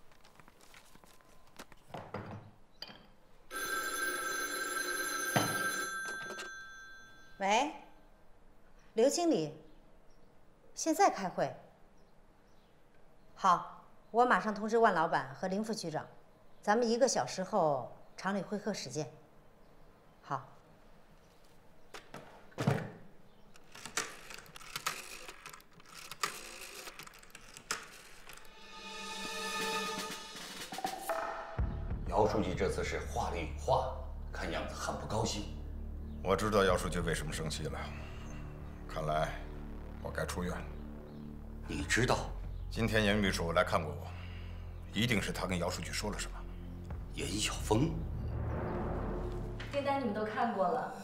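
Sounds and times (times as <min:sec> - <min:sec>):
telephone bell ringing: 0:03.5 - 0:07.4
telephone knock: 0:05.2 - 0:06.5.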